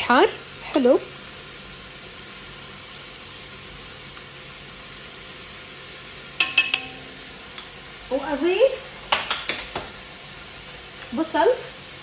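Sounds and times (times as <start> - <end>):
meat sizzling in a pot: 0.0 - 12.0
metal spoon clinks: 6.4 - 7.7.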